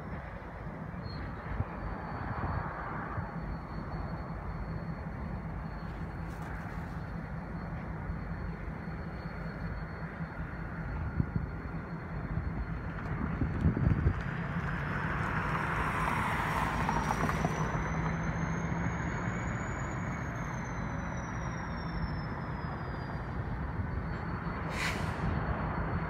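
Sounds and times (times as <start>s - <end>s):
diesel locomotive engine running: 0.0s - 26.0s
short hiss: 24.7s - 25.2s.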